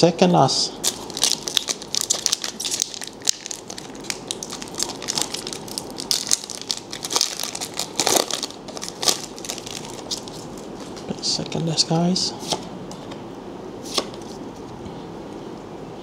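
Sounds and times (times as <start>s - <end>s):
foil wrapper tearing and crinkling: 0.8s - 11.0s.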